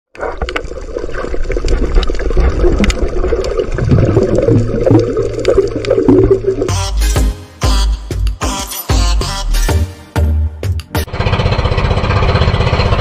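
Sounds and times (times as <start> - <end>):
muffled underwater gurgle and bubbles: 0.1 - 6.7.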